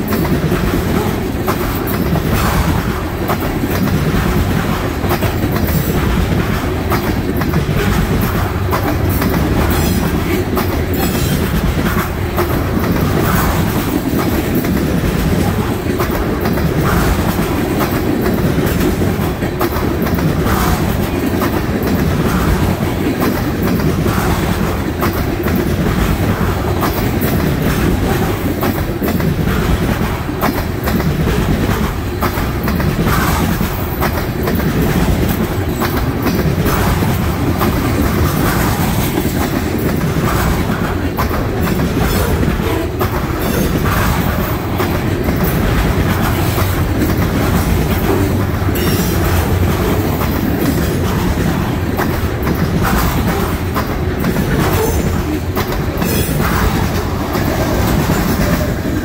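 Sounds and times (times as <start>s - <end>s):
rail clicks: 0.0s - 59.0s
steel wheels rolling on rail: 0.0s - 59.0s.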